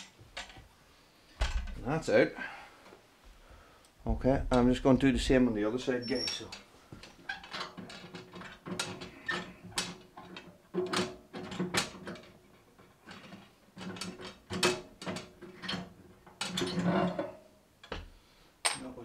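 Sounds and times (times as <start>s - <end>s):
metal stove door clicking and scraping: 6.1s - 18.0s.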